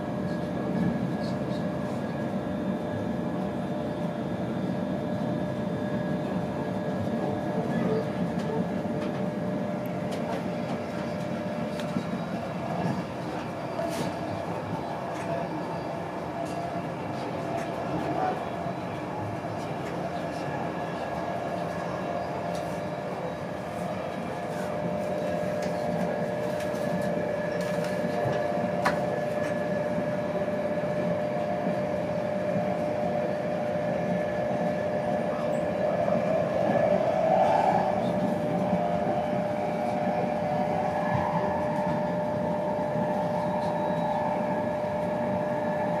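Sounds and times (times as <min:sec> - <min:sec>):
train coach running rumble: 0:00.0 - 0:46.0.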